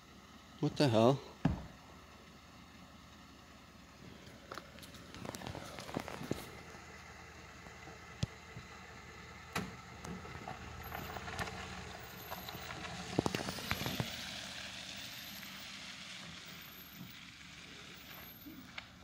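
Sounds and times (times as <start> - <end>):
truck engine running: 0.0 - 19.0
sharp clicks and crunches: 4.5 - 6.6
tyre noise on slush: 10.8 - 18.6.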